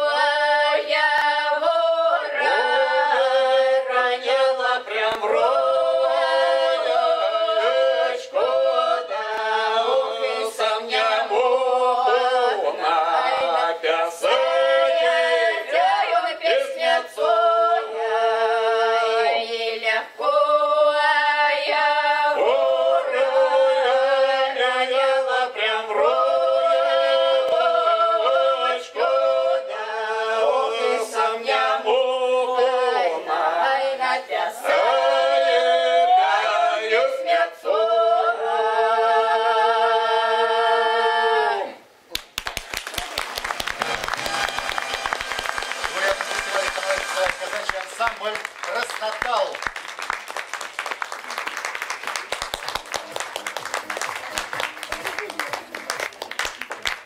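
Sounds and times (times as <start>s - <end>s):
group singing unaccompanied in harmony: 0.0s - 42.0s, 43.4s - 47.5s.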